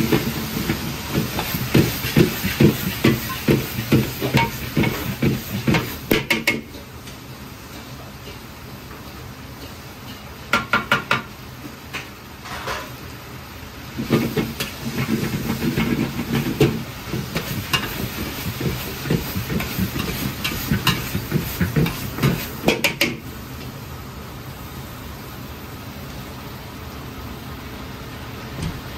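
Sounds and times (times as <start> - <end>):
ladle clattering and scraping wok: 0.0 - 10.4, 13.9 - 23.4
gas burner hissing: 0.0 - 11.2, 13.4 - 26.7
food sizzling: 0.0 - 11.9, 13.0 - 23.9.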